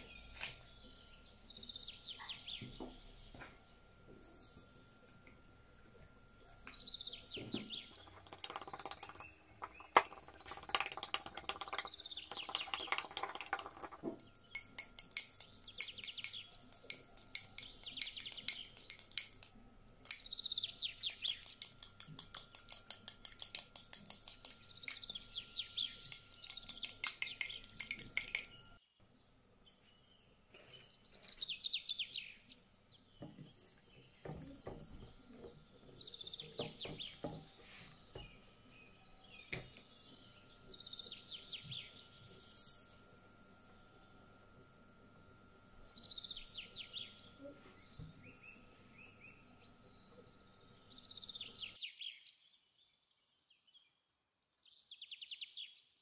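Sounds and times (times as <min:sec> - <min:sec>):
birds chirping: 0:00.0 - 0:04.6, 0:06.0 - 0:22.8, 0:23.4 - 0:51.8
whisk beating eggs in bowl: 0:07.9 - 0:19.3.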